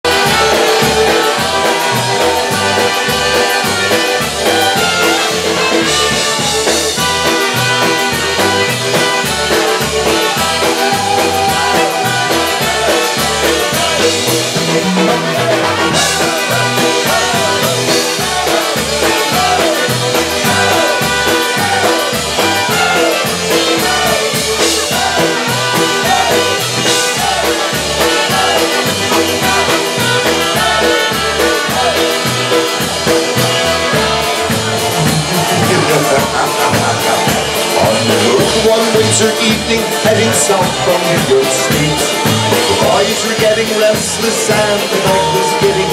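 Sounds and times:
accordion: 0.0 - 45.9
bouncing bass beat: 0.0 - 45.9
trumpets: 0.0 - 45.9.

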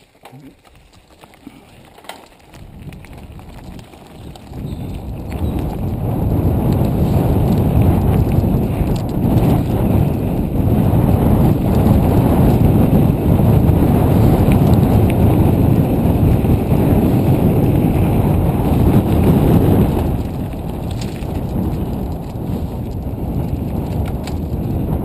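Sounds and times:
wind buffeting microphone: 0.7 - 25.0.

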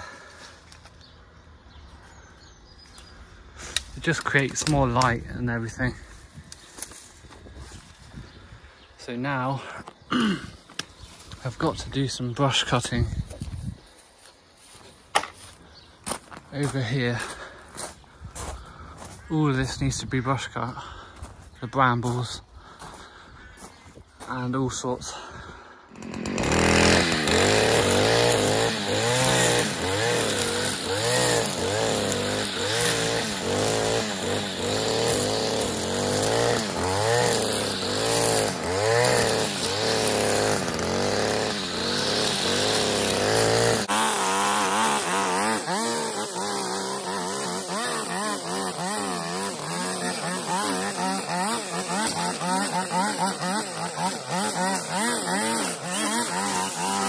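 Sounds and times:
brushcutter revving: 3.6 - 8.4, 25.8 - 57.0.

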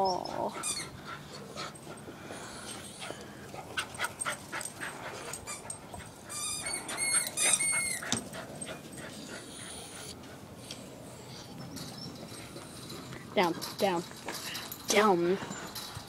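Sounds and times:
dog whimpering: 0.0 - 1.5, 5.3 - 10.2.

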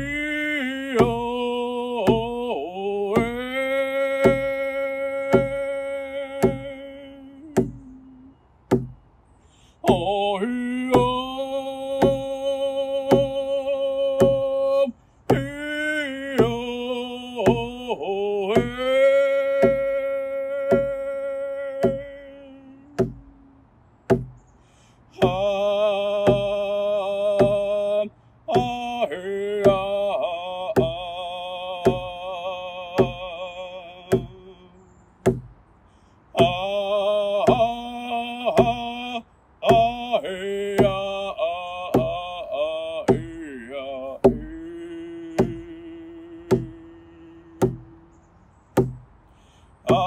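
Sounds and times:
man singing held notes: 0.0 - 8.9, 9.6 - 35.4, 36.3 - 48.2, 48.8 - 50.0
steady drumbeat: 1.0 - 1.4, 2.0 - 2.5, 3.1 - 3.6, 4.2 - 5.7, 6.3 - 7.9, 8.7 - 9.0, 9.8 - 10.2, 10.9 - 14.5, 15.3 - 15.7, 16.3 - 17.9, 18.5 - 20.0, 20.6 - 23.5, 24.1 - 24.4, 25.2 - 27.9, 28.5 - 34.5, 35.2 - 35.6, 36.4 - 36.8, 37.4 - 39.0, 39.7 - 48.0, 48.8 - 49.1.

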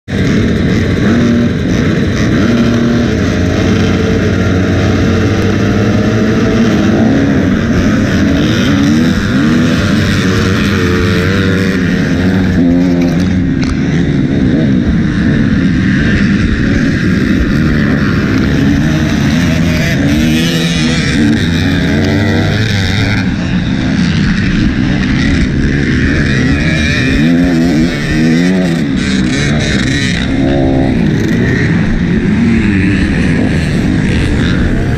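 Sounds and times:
motocross bike engine revving: 0.1 - 34.9
pack of dirt bike engines: 0.1 - 34.9.

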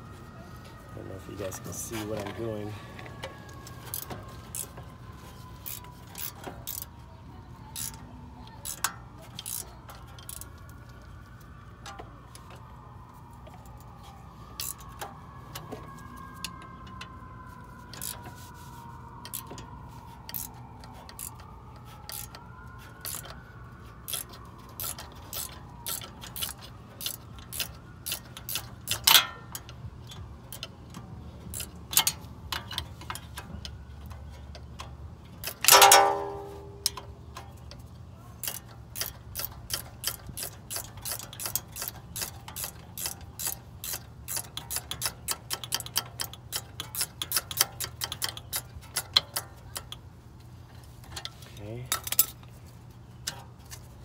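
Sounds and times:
metallic clicks of wrench and pliers: 7.8 - 8.0, 8.6 - 11.0, 17.9 - 18.3, 20.3 - 21.4, 22.0 - 22.4, 23.0 - 23.4, 24.1 - 50.0, 50.7 - 52.5
ringing metal clink: 35.7 - 37.0.

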